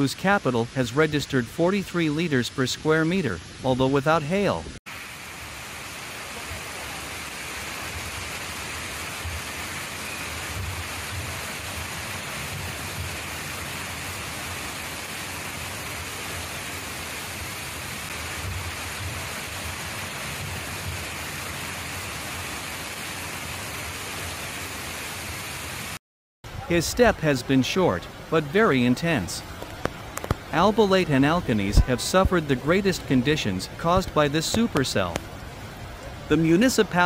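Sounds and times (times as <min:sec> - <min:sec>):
floodwater roaring: 0:00.0 - 0:26.0.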